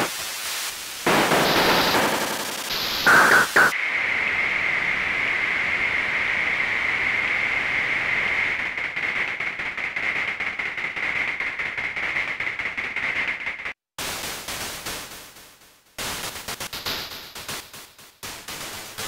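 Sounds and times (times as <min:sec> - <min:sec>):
electronic noise burst: 0:00.0 - 0:00.3, 0:01.0 - 0:03.8
static hiss with high whistle: 0:00.0 - 0:10.3.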